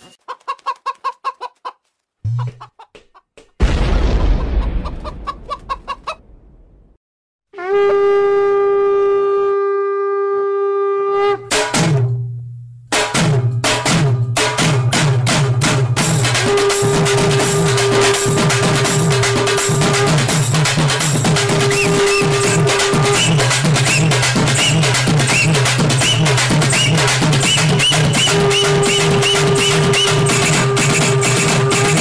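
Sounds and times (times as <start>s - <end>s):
conch shell blown: 7.6s - 11.5s, 16.4s - 20.5s, 21.3s - 27.0s, 27.7s - 32.0s
dance music with drum beat: 16.0s - 32.0s.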